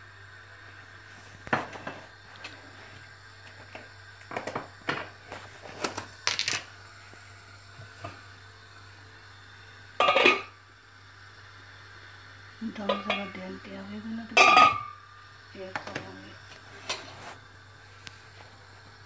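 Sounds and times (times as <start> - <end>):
dishes and utensils clinking: 10.0 - 10.5
metal pot lid clank: 10.0 - 10.5, 14.4 - 15.0.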